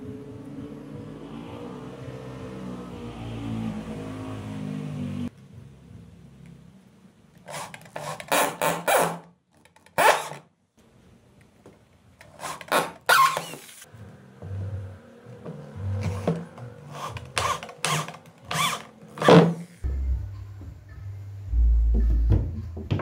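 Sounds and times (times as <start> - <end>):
electric drill boring into wood: 7.5 - 9.2, 10.0 - 10.4, 12.2 - 13.8, 16.0 - 19.6.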